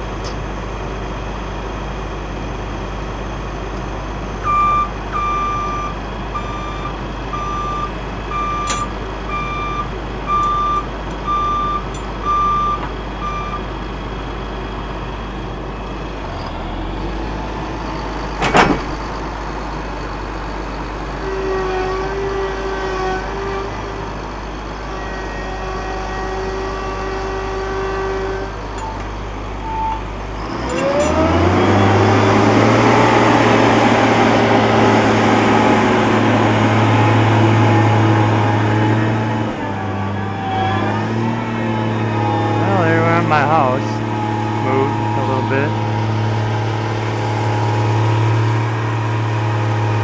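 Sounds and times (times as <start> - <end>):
heavy vehicle engine rumble: 0.0 - 50.0
reversing alarm beeps: 4.5 - 13.7.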